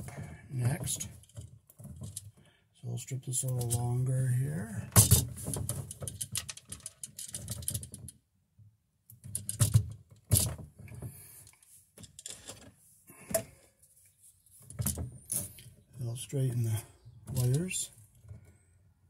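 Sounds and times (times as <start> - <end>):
wire strippers clicking and snapping: 17.3 - 18.2.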